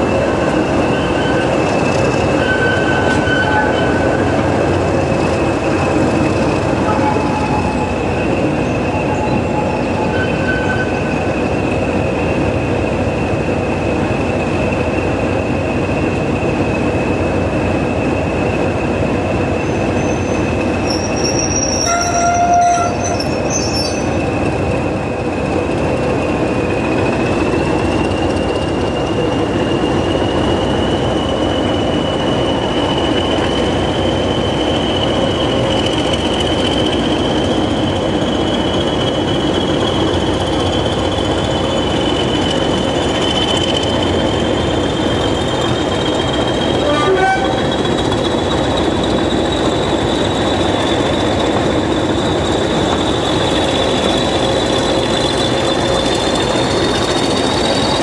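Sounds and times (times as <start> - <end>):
diesel locomotive engines: 0.0 - 58.0.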